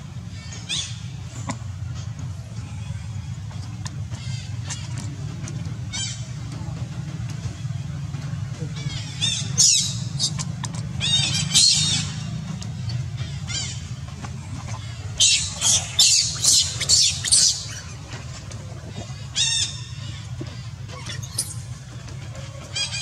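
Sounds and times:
steady low hum: 0.0 - 23.0
baby monkey screaming: 15.2 - 17.9, 21.0 - 21.6.

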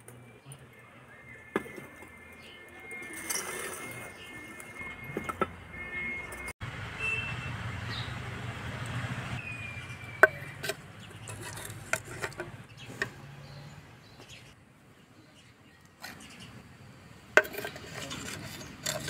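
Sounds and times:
ladle scraping clay pot: 10.2 - 13.1, 17.4 - 19.0.

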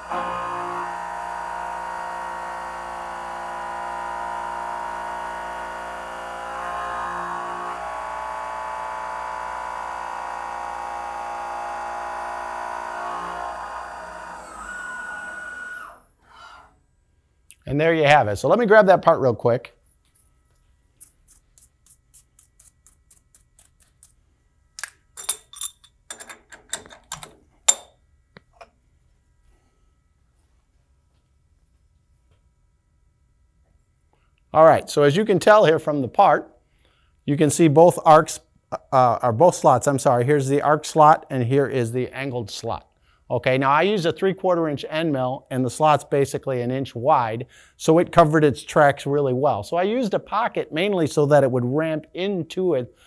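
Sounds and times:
milling machine cutting metal: 0.0 - 16.6
metal clanks of vise: 25.2 - 28.0.

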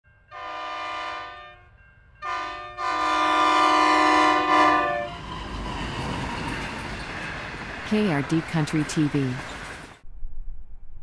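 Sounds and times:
locomotive air horn blasts: 0.3 - 5.2.

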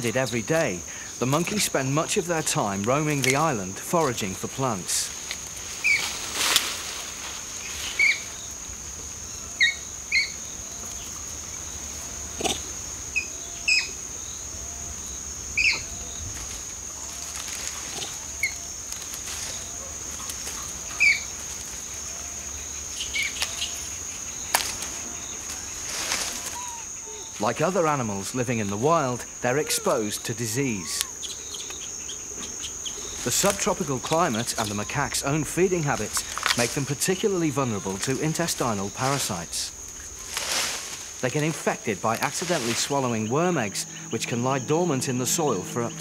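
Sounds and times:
crickets droning: 0.0 - 46.0
sharp cracks in foliage: 1.2 - 9.0, 15.6 - 43.2
bird chirps: 29.4 - 37.9.

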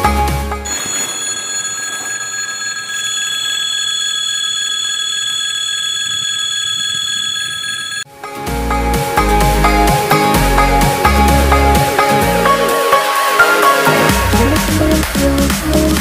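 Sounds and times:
crossing warning bell ringing: 0.7 - 8.1.

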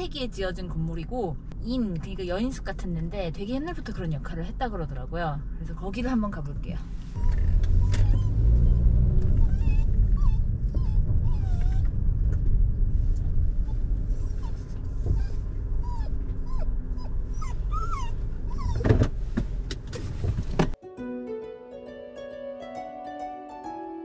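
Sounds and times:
moving car rumble: 0.0 - 20.8
dog whining: 7.2 - 11.9, 13.6 - 19.0.

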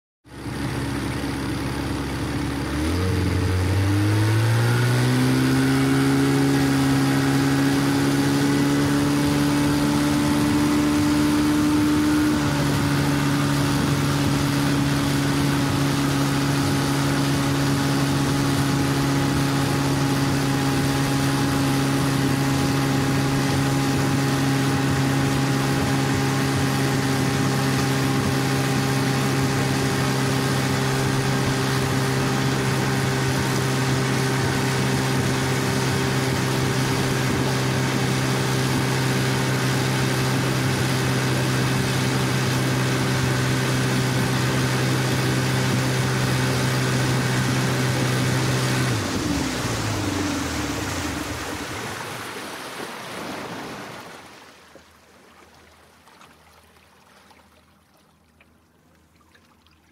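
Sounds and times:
boat motor running: 0.2 - 59.9.

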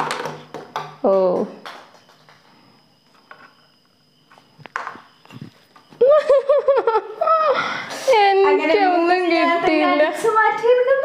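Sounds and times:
thin steady high tone: 1.0 - 11.0
woman laughing loudly: 6.0 - 7.7.

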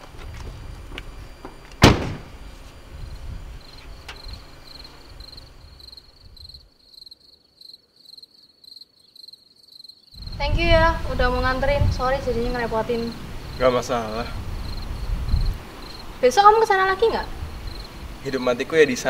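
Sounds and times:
crickets chirping: 0.0 - 19.0
car door shutting: 1.8 - 2.3.

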